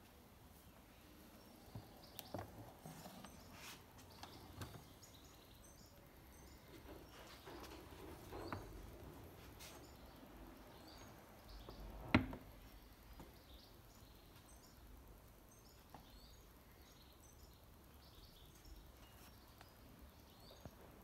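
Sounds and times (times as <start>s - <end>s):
faint high chirps: 12.7s - 20.8s.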